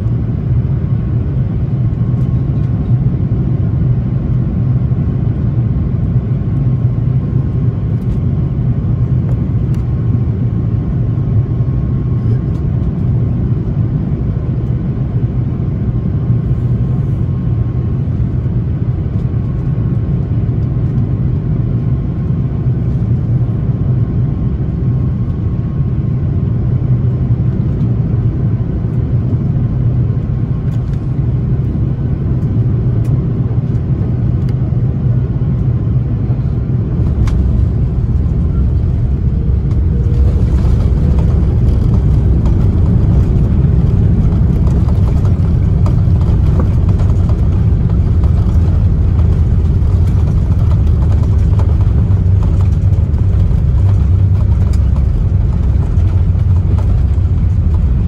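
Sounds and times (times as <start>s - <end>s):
aircraft cabin rumble: 0.0s - 58.0s
faint steady whine: 22.6s - 58.0s.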